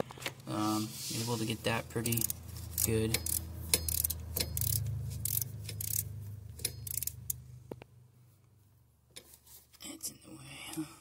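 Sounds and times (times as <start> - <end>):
socket ratchet metal clicks: 2.0 - 7.4.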